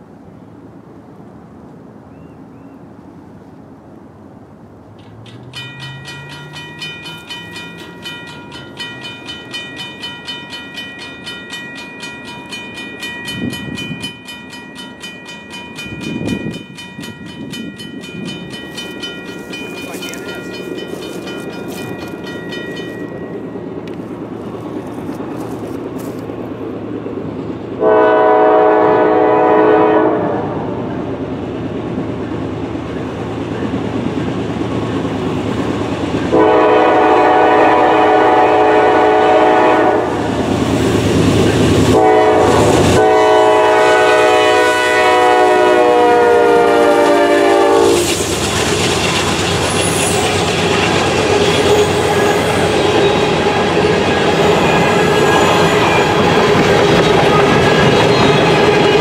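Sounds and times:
diesel locomotive rumble: 4.3s - 29.6s, 30.6s - 59.0s
locomotive air horn blasts: 27.8s - 30.5s, 36.3s - 40.2s, 41.8s - 48.1s.

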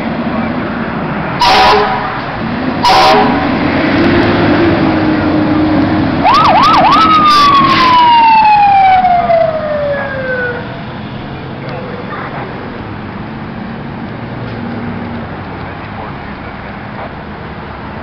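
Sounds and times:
fire engine horn blasts: 1.4s - 3.6s
siren yelping and wailing: 6.2s - 10.8s.

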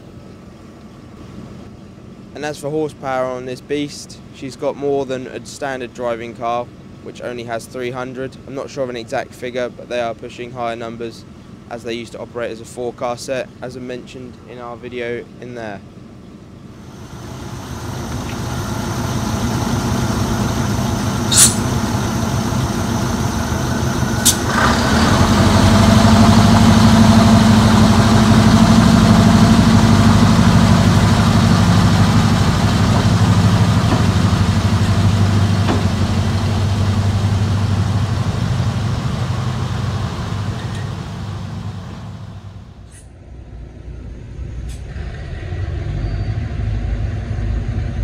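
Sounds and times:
diesel train engines droning: 0.0s - 48.0s
short sharp sounds: 21.3s - 21.8s.

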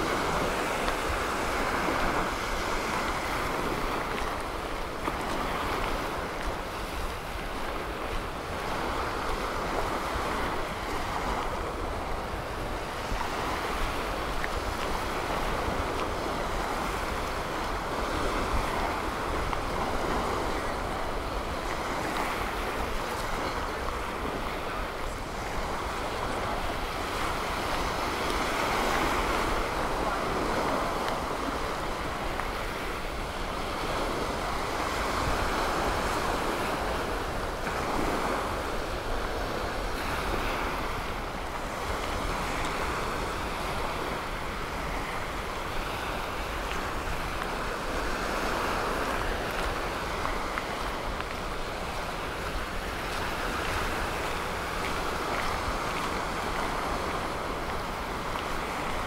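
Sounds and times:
surf washing onto beach: 0.0s - 59.0s
wind rumbling on microphone: 0.0s - 59.0s.

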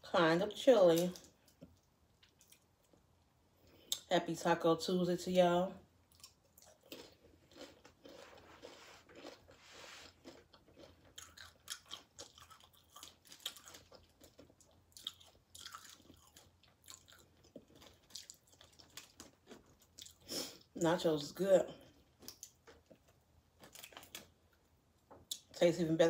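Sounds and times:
person chewing chips: 6.0s - 20.8s, 21.7s - 25.6s.

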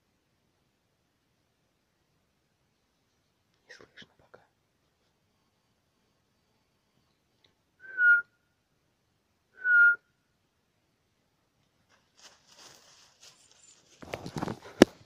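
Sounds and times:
short loud whistle notes: 7.8s - 8.3s, 9.6s - 10.0s.

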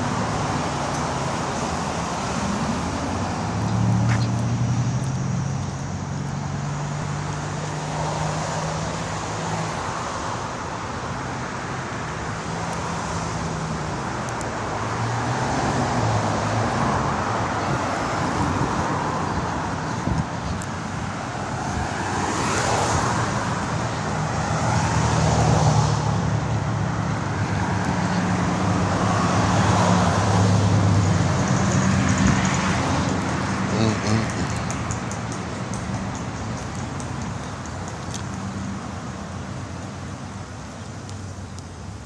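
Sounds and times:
cars driving past: 0.0s - 41.4s.

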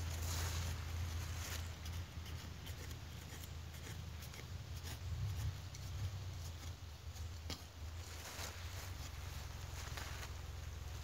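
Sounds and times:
gloved hand scraping sandy soil: 0.0s - 11.0s.

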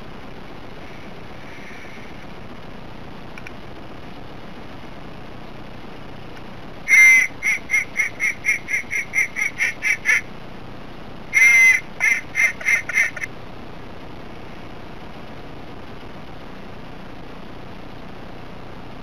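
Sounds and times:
duck call quacks: 6.9s - 10.3s, 11.3s - 13.3s.

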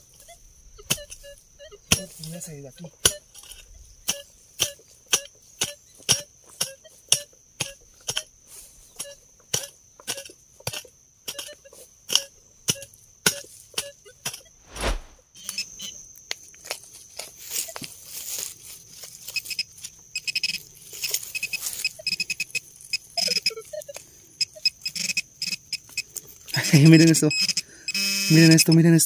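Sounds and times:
scraping scoop: 14.6s - 15.2s.

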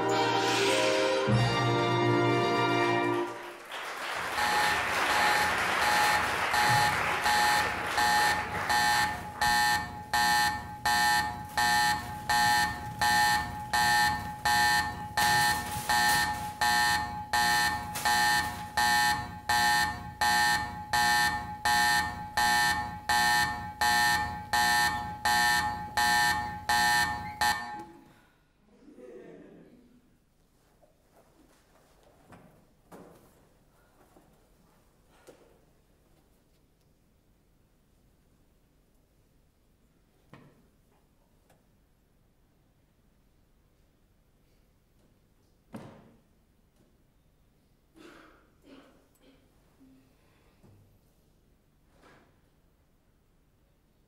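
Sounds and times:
music: 0.0s - 3.5s
electronic alarm beeping: 4.4s - 28.1s.

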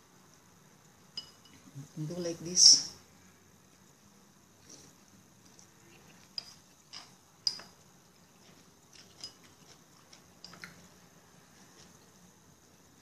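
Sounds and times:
utensils tapping dishes: 6.3s - 7.8s, 8.4s - 10.9s.

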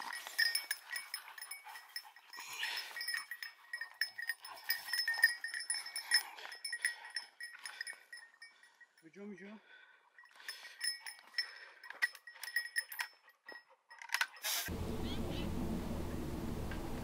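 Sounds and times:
small bells jingling: 0.0s - 14.7s.

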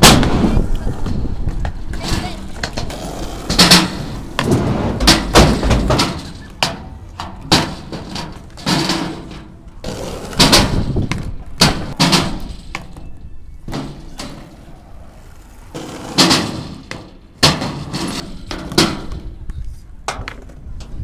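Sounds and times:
skateboard wheels rolling on asphalt: 0.0s - 21.0s
skateboard wooden smacks and clacks: 15.4s - 21.0s.

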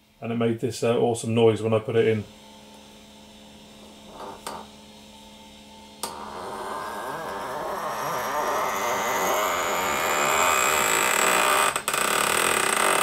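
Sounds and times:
loud grinding squeal: 6.1s - 13.0s.

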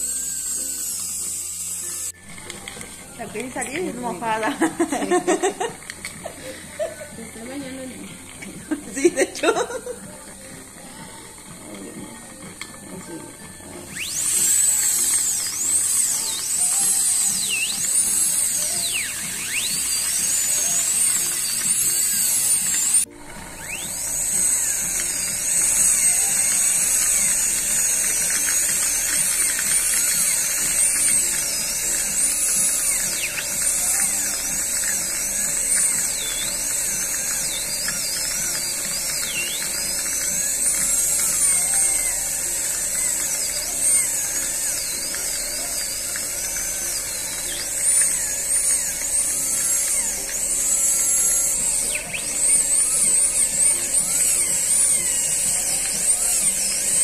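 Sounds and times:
dental drill whining: 0.0s - 57.0s.

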